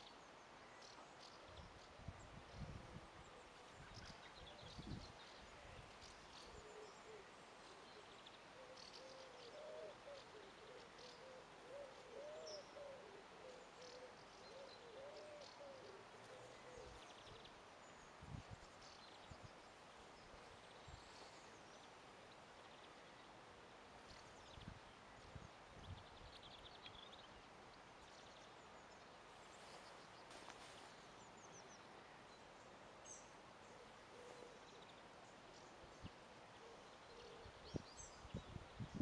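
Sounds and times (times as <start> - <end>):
small birds chirping: 24.0 - 39.0.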